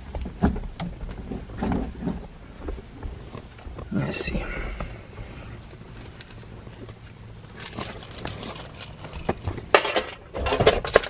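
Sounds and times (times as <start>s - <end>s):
low steady hum: 0.0s - 11.0s
rustling and clicks: 5.6s - 11.0s
knocks and clattering: 7.5s - 11.0s.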